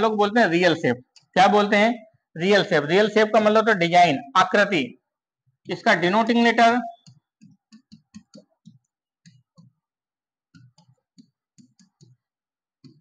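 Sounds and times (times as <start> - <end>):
marker pen writing on whiteboard: 5.7 - 13.0.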